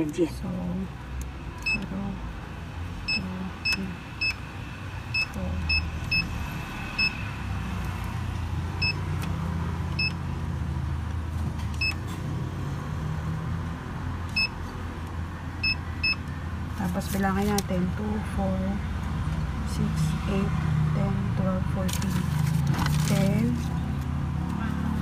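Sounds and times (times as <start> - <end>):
keypad beeps: 1.6 - 1.9, 3.1 - 4.4, 5.1 - 6.3, 8.8 - 9.0, 10.0 - 10.2, 14.3 - 14.6, 15.6 - 16.3.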